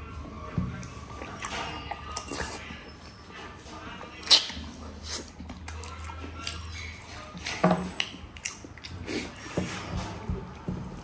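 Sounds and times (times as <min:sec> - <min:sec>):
person chewing and smacking: 0:04.2 - 0:07.4, 0:08.0 - 0:09.4.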